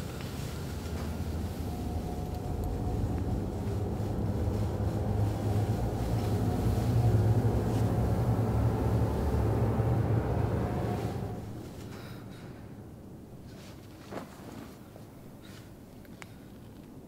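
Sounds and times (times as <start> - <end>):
low rumbling drone: 0.0 - 13.3.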